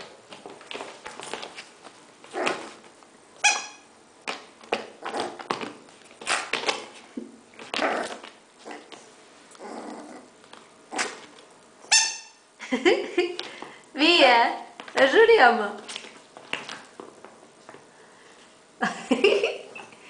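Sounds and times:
puppy growling and yipping: 2.3s - 2.8s, 4.9s - 5.6s, 7.6s - 11.4s
squeaky toy squeaks: 3.4s - 3.9s, 11.9s - 12.4s.

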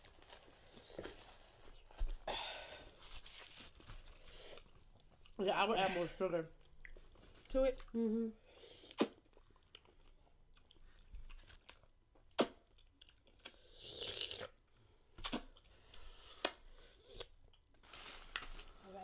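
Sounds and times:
lip smacks: 12.2s - 13.2s, 15.2s - 15.6s.

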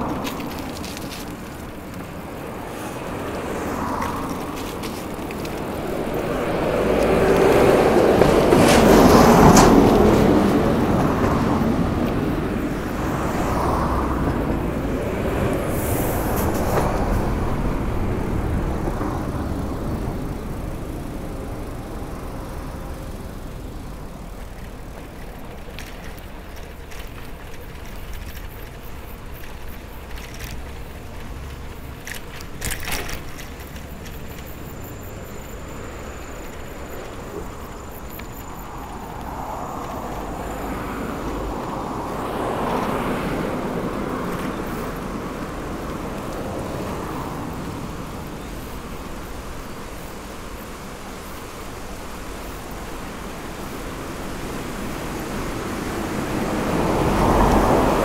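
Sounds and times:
bike rattling clicks: 0.0s - 15.6s, 16.3s - 46.9s
rushing sound: 0.0s - 22.2s
bicycle tyres and wind rumble: 0.0s - 58.0s.

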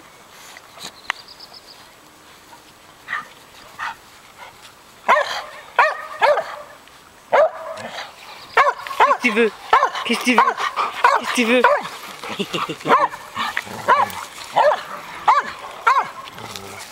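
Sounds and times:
dog play barks: 5.1s - 16.6s
dogs tussling: 7.6s - 16.9s.

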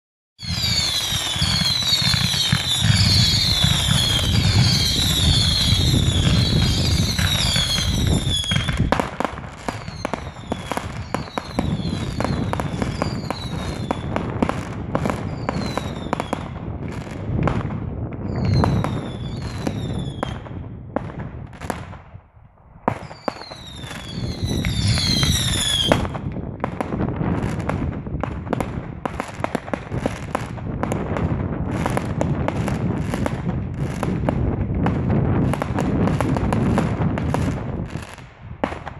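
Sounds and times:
fireworks falling whistles: 0.4s - 17.1s, 18.2s - 20.5s, 22.9s - 26.8s
fireworks bangs and crackling: 0.4s - 38.9s.

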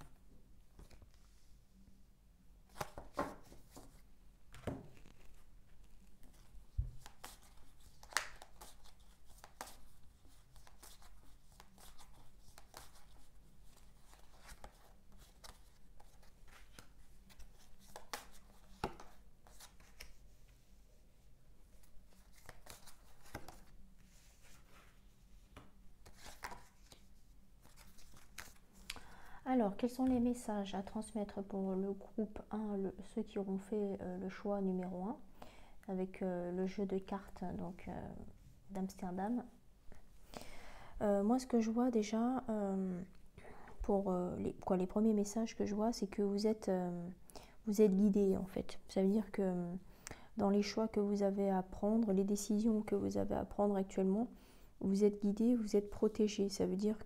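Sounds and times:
playing cards shuffling: 4.6s - 20.2s, 21.8s - 23.8s, 25.6s - 29.0s.

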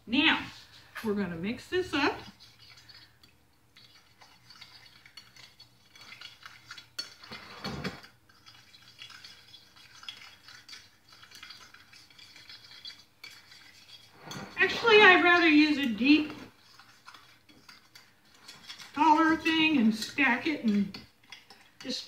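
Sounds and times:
utensil scraping glass dish: 4.1s - 8.1s, 11.2s - 22.0s.

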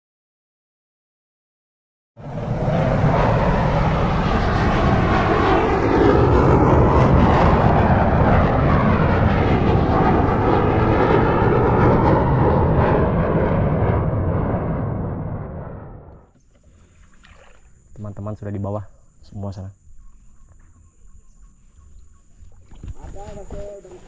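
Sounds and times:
water rushing: 16.8s - 17.8s.

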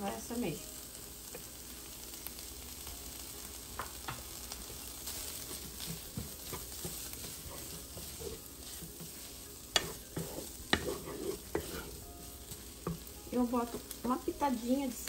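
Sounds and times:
frying sizzle: 0.0s - 15.0s
wooden spoon scraping a pan: 4.6s - 15.0s.

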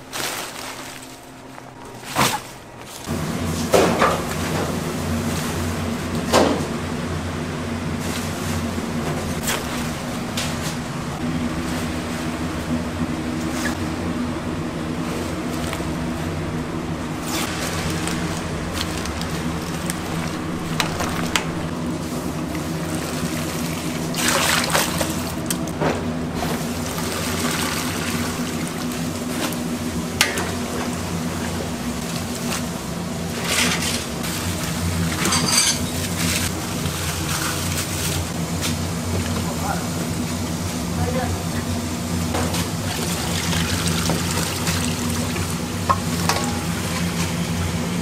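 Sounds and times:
steady low hum: 0.0s - 48.0s
water sloshing and splashing: 17.2s - 29.6s.

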